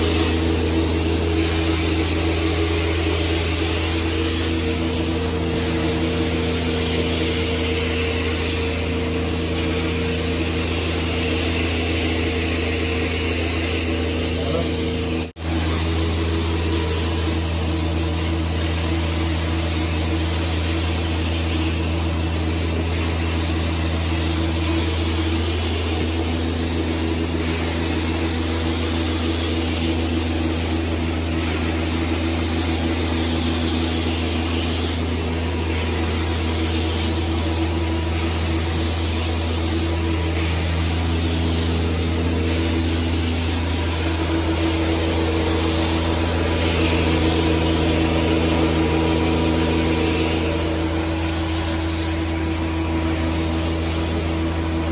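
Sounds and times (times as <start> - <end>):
carpet cleaning machine hum and hiss: 0.0 - 54.9.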